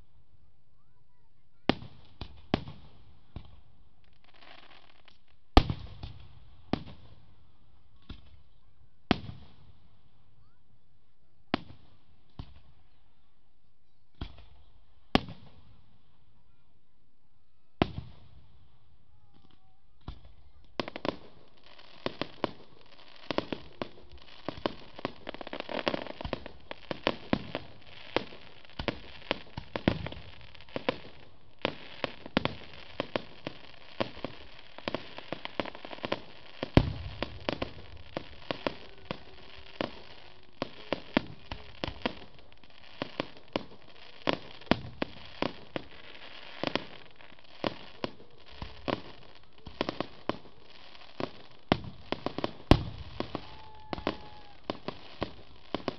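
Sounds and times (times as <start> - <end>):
fireworks bangs and crackling: 1.6 - 7.4, 8.0 - 8.5, 9.1 - 10.6, 11.5 - 13.0, 14.1 - 16.2, 17.8 - 55.9.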